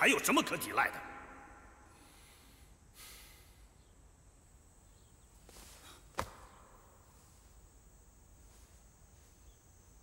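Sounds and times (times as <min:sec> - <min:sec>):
faint rustle: 0:05.2 - 0:10.0.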